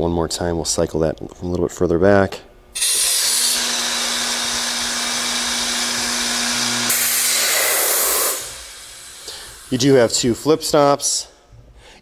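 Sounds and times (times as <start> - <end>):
boring motor humming: 2.8 - 9.7
drilling into wood: 2.8 - 9.7.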